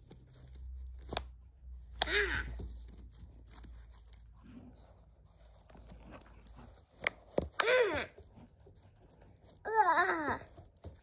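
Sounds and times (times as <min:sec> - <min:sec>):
rustling of wooden rods and cloth: 0:00.0 - 0:11.0
child crying ah: 0:02.0 - 0:02.6, 0:07.6 - 0:08.2, 0:09.6 - 0:10.5.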